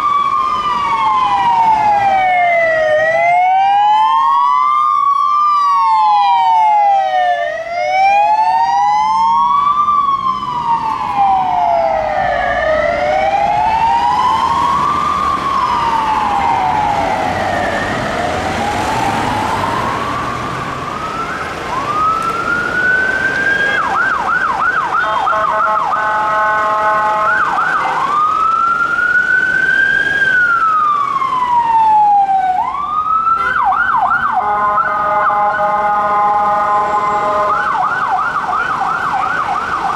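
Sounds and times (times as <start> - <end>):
police siren wailing: 0.0 - 39.9
police siren yelps: 0.0 - 39.9
blaring horn tone: 25.0 - 28.0, 34.4 - 37.7.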